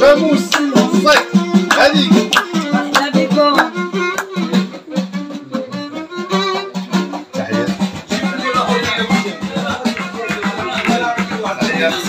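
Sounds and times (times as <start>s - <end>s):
frame drums beat: 0.0s - 12.0s
violin gliding melody: 0.0s - 12.0s.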